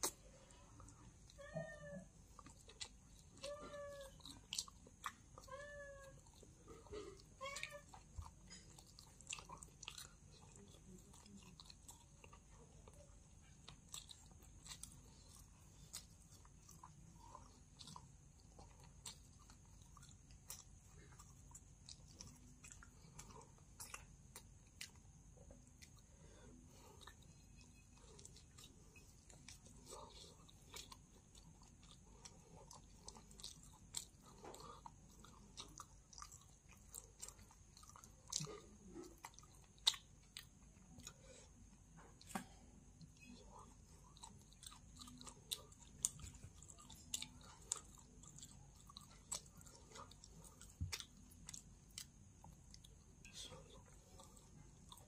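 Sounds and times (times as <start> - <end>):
person chewing food: 0.0 - 1.4, 2.1 - 55.0
cat meowing faintly: 1.3 - 2.2.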